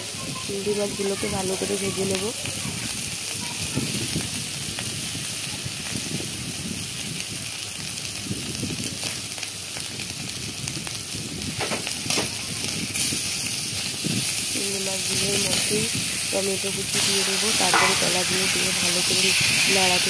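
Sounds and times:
shrimp sizzling in oil: 0:00.0 - 0:20.0
metal spatula scraping pan: 0:17.4 - 0:19.7.

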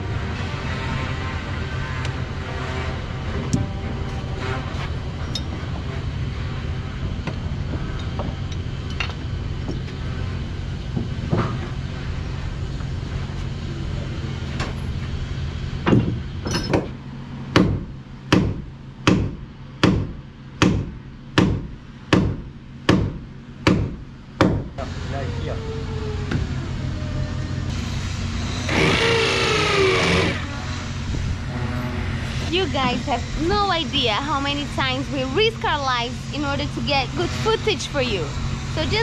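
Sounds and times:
low machine hum: 0:00.0 - 0:39.0
hammer striking wood: 0:15.8 - 0:24.7.

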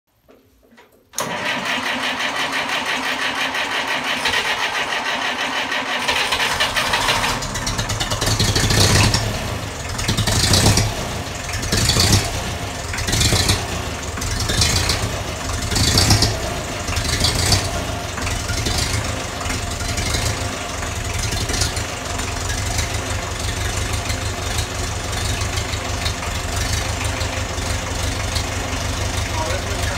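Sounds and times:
tractor starter cranking: 0:00.8 - 0:29.9
tractor engine revving and idling: 0:01.2 - 0:29.9.

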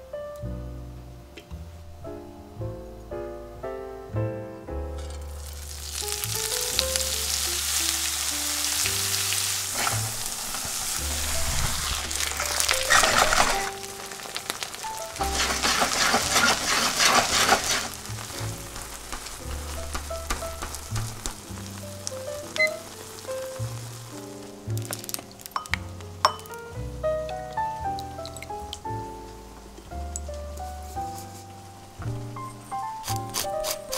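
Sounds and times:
soft piano background music: 0:00.0 - 0:33.9
pancake sizzling in frying pan: 0:05.2 - 0:26.6.

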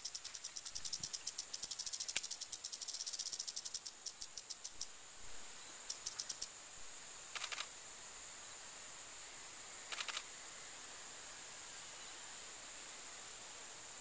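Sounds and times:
steady high hiss: 0:00.0 - 0:14.0
camera shutter clicking in bursts: 0:07.3 - 0:07.7, 0:09.9 - 0:10.2.

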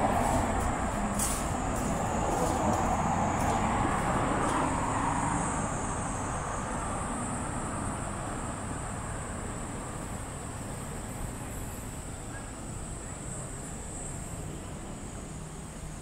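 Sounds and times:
vehicle passing: 0:00.0 - 0:07.9
steady high-pitched whine: 0:00.0 - 0:16.0.

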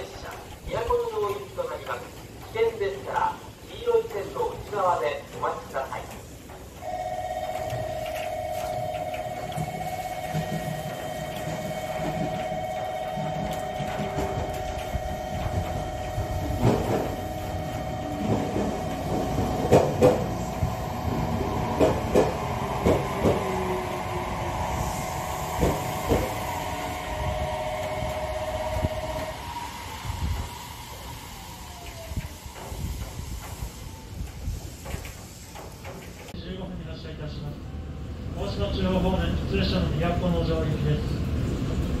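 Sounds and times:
train wheels clacking over rail joints: 0:00.0 - 0:36.4
steady tone: 0:06.8 - 0:31.2.

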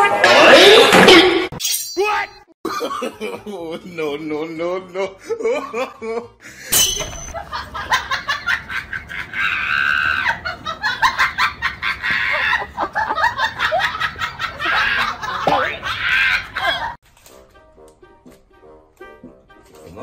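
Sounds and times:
man cackling with laughter: 0:04.9 - 0:06.4, 0:07.4 - 0:17.0.

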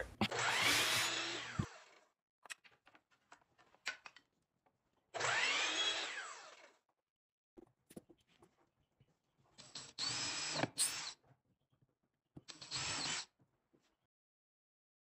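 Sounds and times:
miter saw cutting wood: 0:00.0 - 0:01.8, 0:05.2 - 0:06.5.

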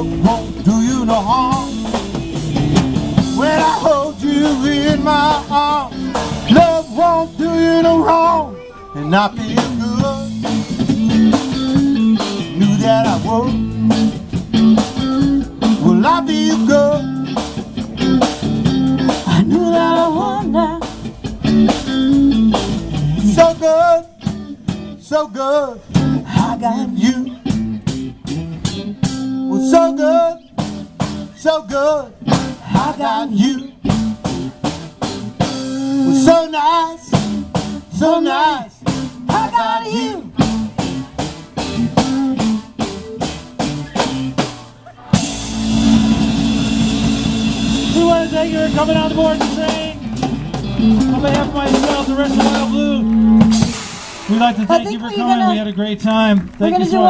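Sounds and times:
drum kit hits: 0:00.0 - 0:07.5, 0:45.2 - 0:54.7.

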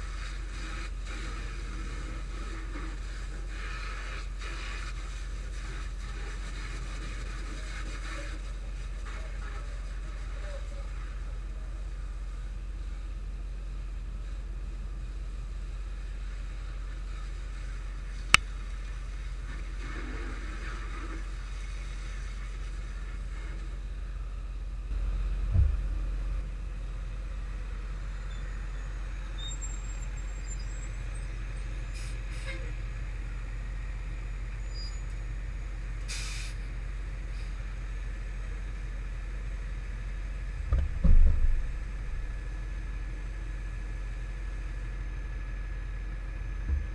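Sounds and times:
vehicle engine idling: 0:22.9 - 0:46.9
low thump: 0:25.4 - 0:26.4, 0:40.6 - 0:42.4, 0:46.6 - 0:46.9
short hiss: 0:36.1 - 0:36.6.

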